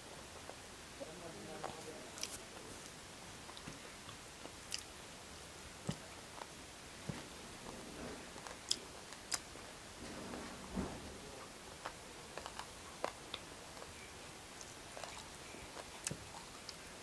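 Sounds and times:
open-mouthed chewing: 0:01.6 - 0:05.0, 0:08.3 - 0:09.6, 0:11.4 - 0:17.0.

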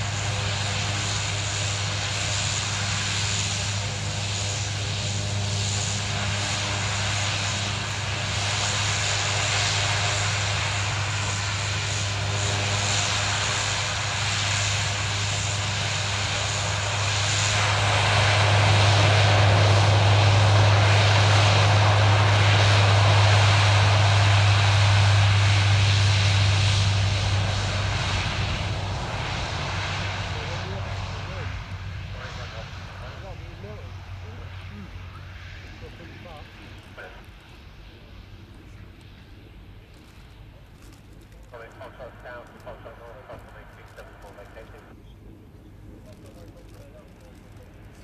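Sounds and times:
turboprop propeller drone: 0:00.0 - 0:48.0.

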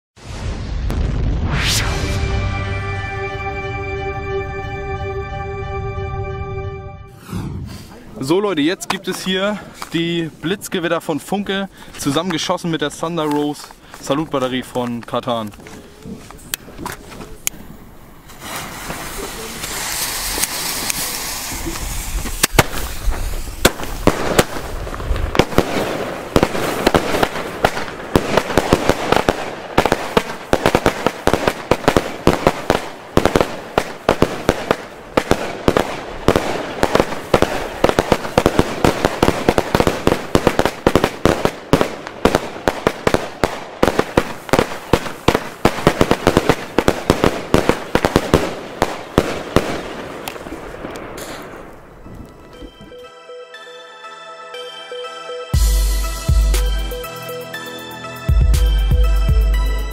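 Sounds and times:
fireworks bangs and crackling: 0:00.2 - 0:02.4, 0:07.2 - 0:52.3.

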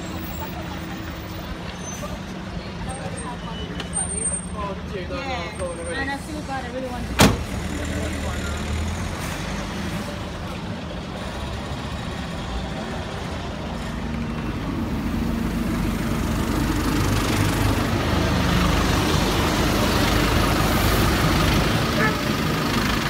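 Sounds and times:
road traffic: 0:00.0 - 0:23.0
bus engine running: 0:06.4 - 0:23.0.

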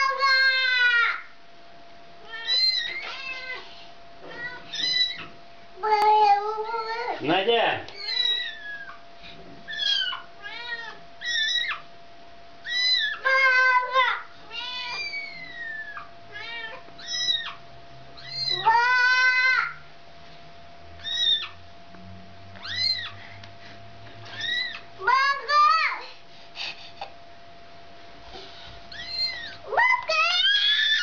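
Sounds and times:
cat and kitten meowing: 0:00.0 - 0:01.2, 0:02.2 - 0:07.1, 0:07.9 - 0:09.0, 0:09.7 - 0:11.9, 0:12.6 - 0:17.6, 0:18.2 - 0:19.8, 0:21.0 - 0:21.6, 0:22.6 - 0:23.2, 0:24.2 - 0:25.8, 0:28.9 - 0:31.0.

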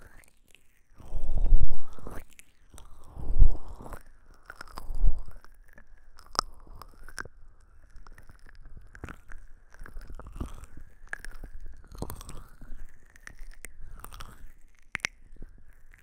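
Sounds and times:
fingertips rubbing microphone: 0:01.1 - 0:02.2, 0:03.1 - 0:04.0, 0:04.8 - 0:05.4.

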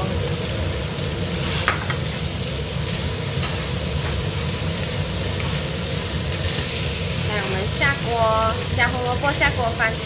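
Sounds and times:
food sizzling in oil: 0:00.0 - 0:10.0.

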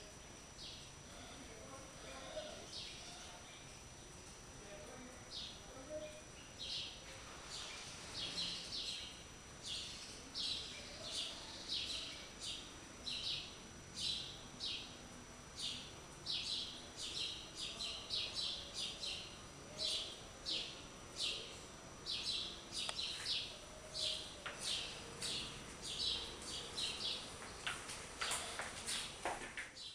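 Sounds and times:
bird chirping: 0:05.3 - 0:15.0, 0:15.6 - 0:27.7.

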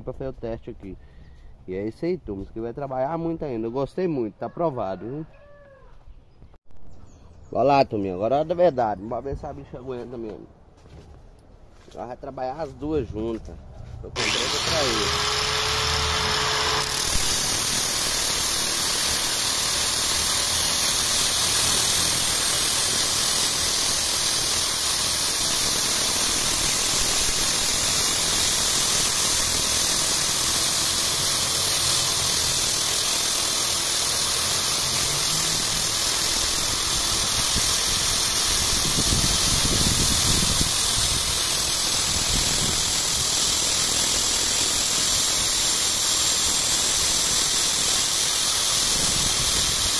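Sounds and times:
metal rod grinding on cutting disc: 0:14.2 - 0:49.9
power tool motors whining: 0:14.2 - 0:49.9.

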